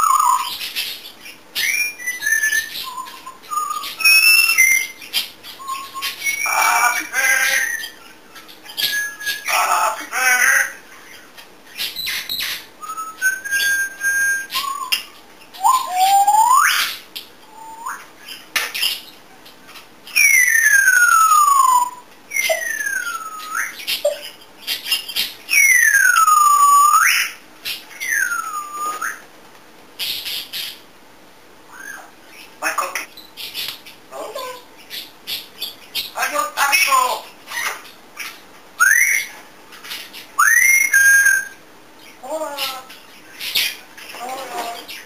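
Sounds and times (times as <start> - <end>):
parrot sliding whistles: 40.4 - 41.5.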